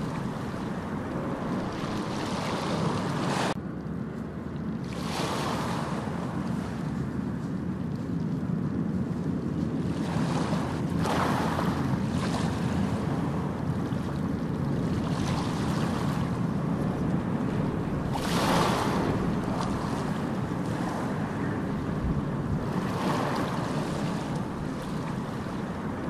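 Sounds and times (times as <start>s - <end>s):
steady rushing noise: 0.0s - 3.7s, 5.8s - 26.0s.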